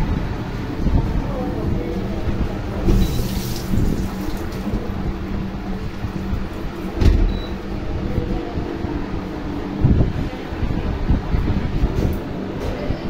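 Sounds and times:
dishwasher running: 0.0 - 13.0
water swishing: 2.8 - 6.8.

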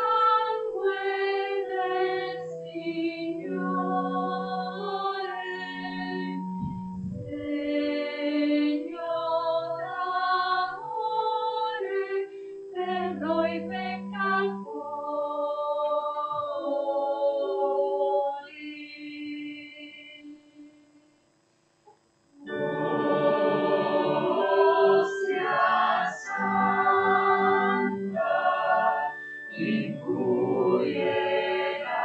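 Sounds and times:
organ accompaniment: 0.0 - 15.2, 22.3 - 32.0
voices singing a hymn: 0.0 - 20.8, 22.4 - 32.0.

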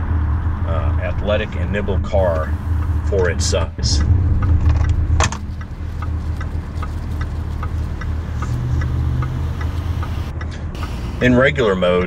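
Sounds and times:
car engine and road hum: 0.0 - 12.0
faint regular ticks: 4.0 - 11.0.

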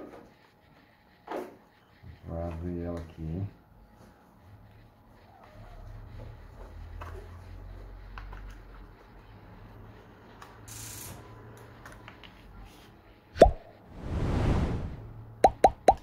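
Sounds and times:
whoosh sound effect: 13.9 - 15.2.

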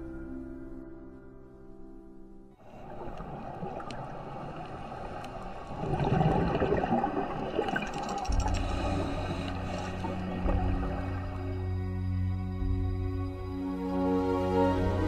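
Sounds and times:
underwater water rushing: 2.6 - 11.9
low bubbling rumble: 2.6 - 13.0
faint clicks: 2.9 - 5.7, 7.7 - 10.0.

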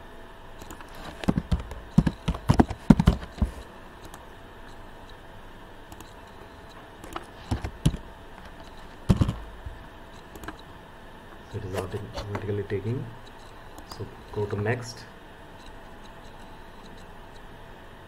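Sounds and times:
typing on computer keyboard: 0.6 - 4.2, 7.0 - 9.4, 10.2 - 10.6.

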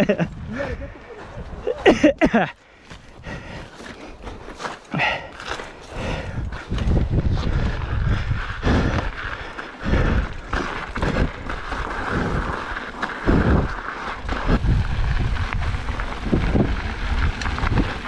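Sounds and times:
wind buffeting microphone: 0.0 - 2.2, 2.9 - 18.0
bike knocking and rattling: 3.8 - 18.0.

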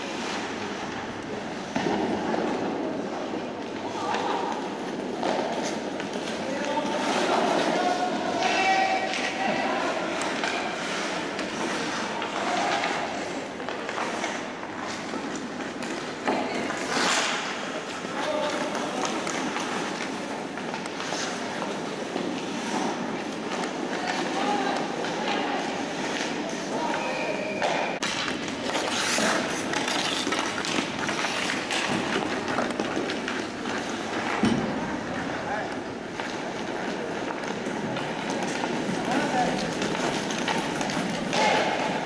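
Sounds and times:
hockey sticks and puck clacking: 1.6 - 42.0
skate blades scraping ice: 9.9 - 24.4, 28.1 - 35.4, 36.2 - 42.0.

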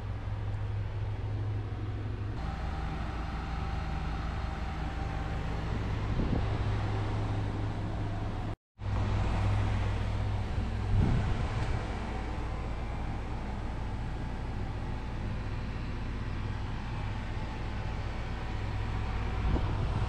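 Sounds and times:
engine droning: 0.0 - 20.0
wind noise: 5.9 - 7.6, 10.5 - 12.2, 19.2 - 20.0.

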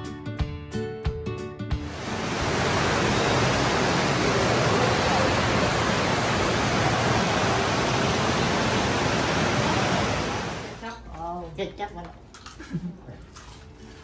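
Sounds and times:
loud steady rushing noise: 1.8 - 10.8.

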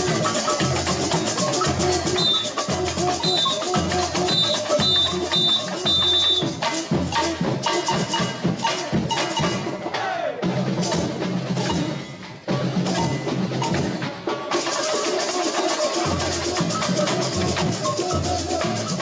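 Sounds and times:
shakers rattling: 0.0 - 9.4, 14.5 - 19.0
short high repeating notes: 0.0 - 10.1
percussion band playing: 0.0 - 19.0.

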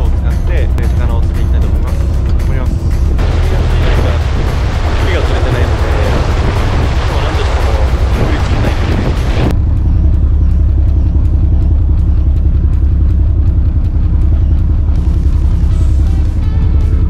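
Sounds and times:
boat engine rumbling: 0.0 - 17.0
faint background music: 0.0 - 17.0.

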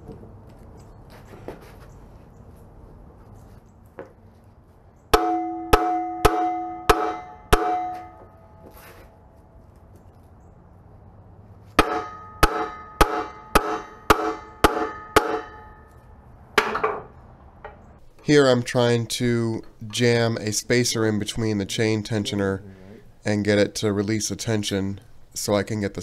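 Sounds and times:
hammer blows on steel housing: 5.1 - 8.4, 11.8 - 15.9.

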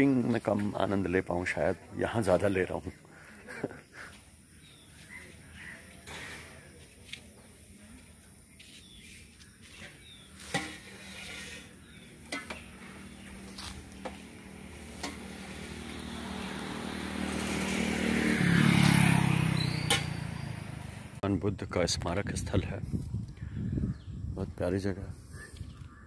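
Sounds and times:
vehicle passing close by: 12.7 - 21.2.

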